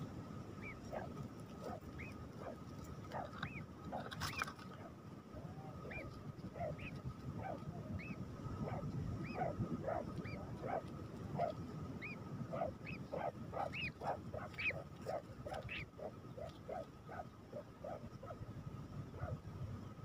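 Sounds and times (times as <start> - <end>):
nightjars squeaky calls: 0.6 - 4.9, 5.8 - 7.0, 8.0 - 10.8, 11.4 - 18.4.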